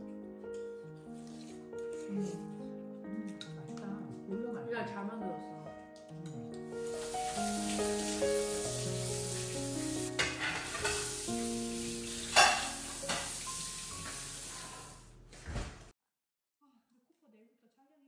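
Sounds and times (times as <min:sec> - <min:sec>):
soft background music: 0:00.0 - 0:14.9
tap water splashing in sink: 0:07.0 - 0:14.9
dish clink: 0:10.1 - 0:11.3, 0:12.2 - 0:14.8.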